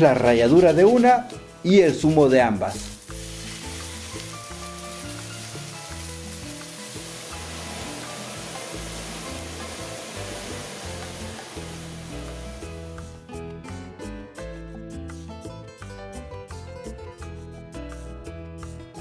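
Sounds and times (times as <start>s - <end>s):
background music: 0.0s - 19.0s
oil sizzling in a pot: 1.4s - 13.2s.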